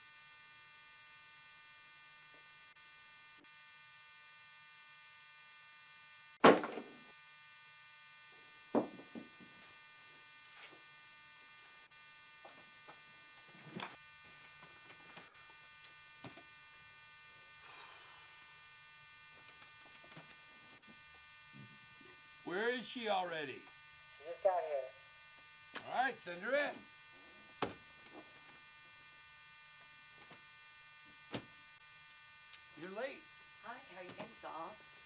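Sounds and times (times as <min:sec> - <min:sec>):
electrical hum and buzz: 0:00.0 - 0:35.0
knocks: 0:08.7 - 0:09.3.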